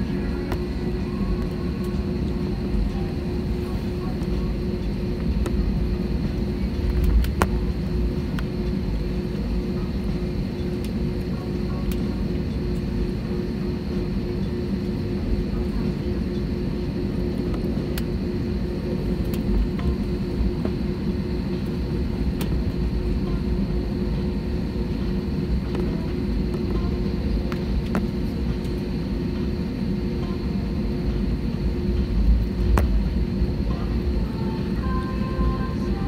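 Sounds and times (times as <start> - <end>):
cabin hum: 0.0 - 36.0
faint high whine: 0.0 - 36.0
jet engines idling rumble: 0.0 - 36.0.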